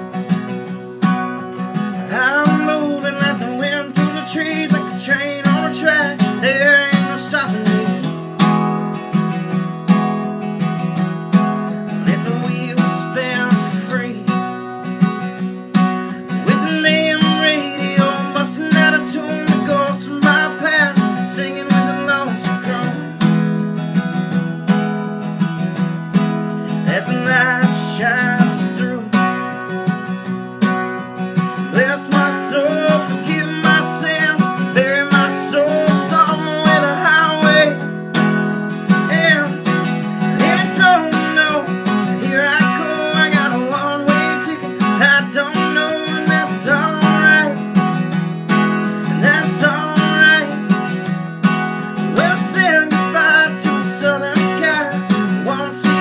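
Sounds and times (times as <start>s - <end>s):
acoustic guitar strumming: 0.0s - 56.0s
man singing: 1.4s - 8.4s, 11.9s - 14.6s, 16.1s - 23.4s, 26.5s - 29.7s, 31.4s - 48.0s, 48.8s - 51.1s, 51.8s - 56.0s.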